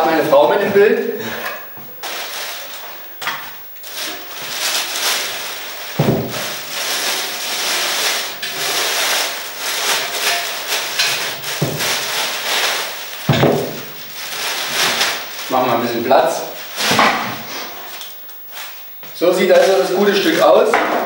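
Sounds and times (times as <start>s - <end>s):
plastic wrapping crinkling: 2.0s - 20.6s
dull thumps: 6.0s - 6.6s.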